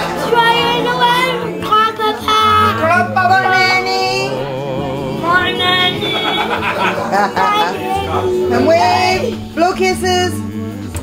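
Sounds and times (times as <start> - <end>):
background music: 0.0 - 11.0
children singing: 0.0 - 11.0.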